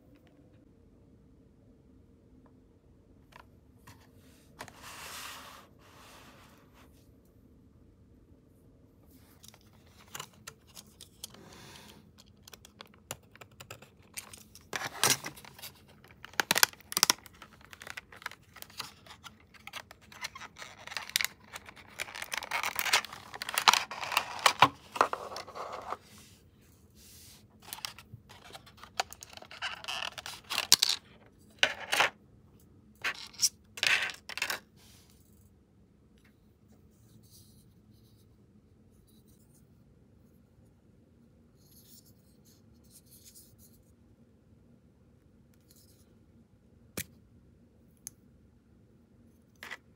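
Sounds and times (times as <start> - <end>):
plastic wrap crinkling: 15.0 - 25.0.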